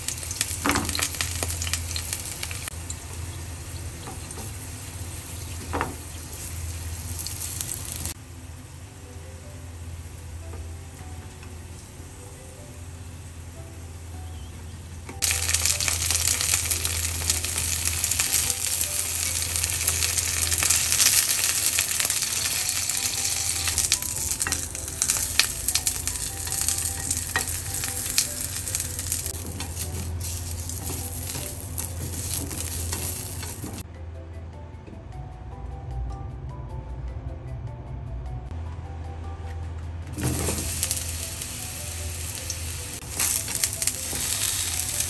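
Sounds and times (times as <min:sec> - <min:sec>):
peppers sizzling in oil: 0:00.0 - 0:08.2, 0:15.1 - 0:33.8, 0:40.2 - 0:45.0.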